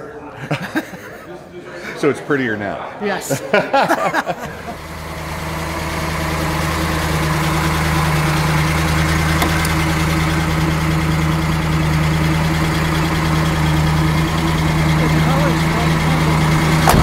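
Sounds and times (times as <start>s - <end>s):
car engine idling: 4.1s - 17.0s.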